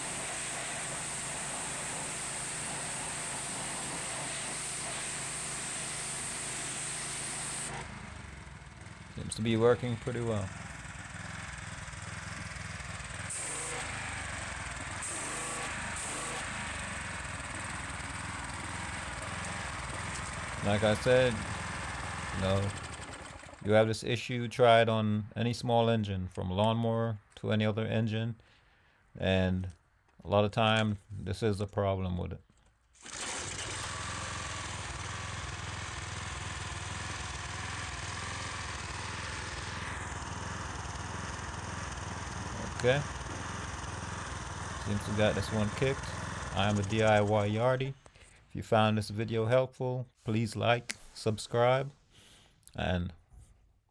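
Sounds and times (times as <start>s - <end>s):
hiss bursts: 0.0s - 7.7s, 13.3s - 16.9s
small engine running: 0.0s - 23.8s, 33.0s - 48.5s.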